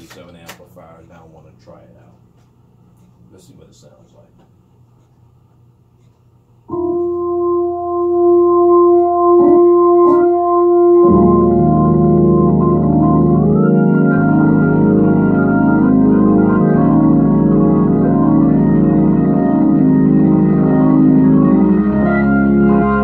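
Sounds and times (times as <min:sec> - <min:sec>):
organ playing wavering chords: 0:06.7 - 0:23.0.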